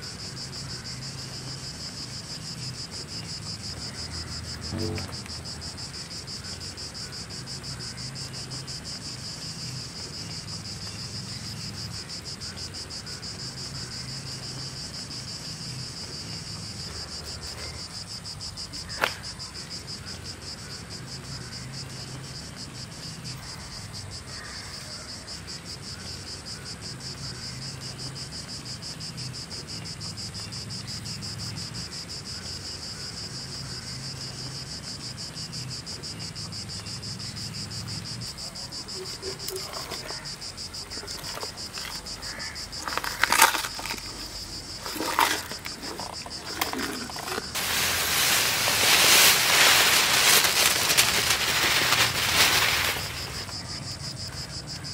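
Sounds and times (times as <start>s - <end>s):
insects trilling: 0.0s - 54.9s.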